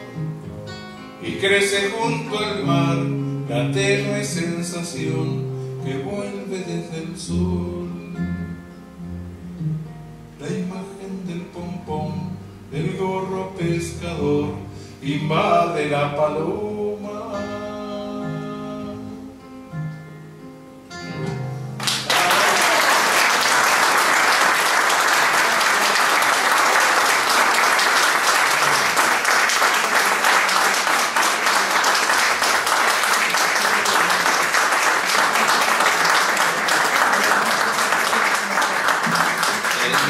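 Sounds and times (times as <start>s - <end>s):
acoustic guitar notes ringing: 0.0s - 21.8s
audience applause: 21.8s - 40.0s.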